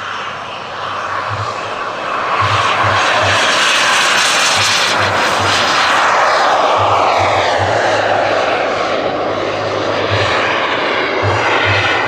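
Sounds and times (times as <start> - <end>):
model jet turbine roaring: 0.0 - 12.0.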